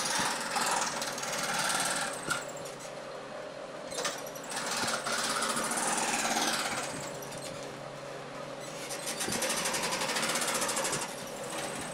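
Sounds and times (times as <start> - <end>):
jigsaw cutting wood: 0.0 - 2.4, 4.5 - 7.0, 9.2 - 11.7.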